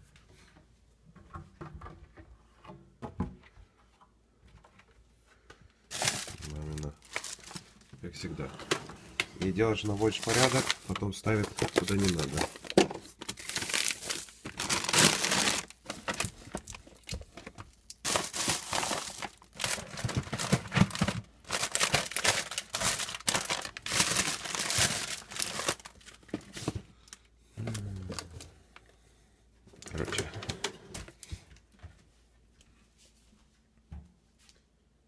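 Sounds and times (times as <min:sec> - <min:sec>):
plastic bags rustling: 0:05.9 - 0:28.4.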